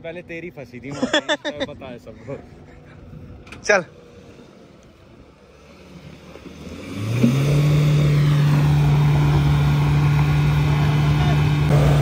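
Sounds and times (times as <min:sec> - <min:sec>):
vehicle engine revving: 0:05.4 - 0:12.0.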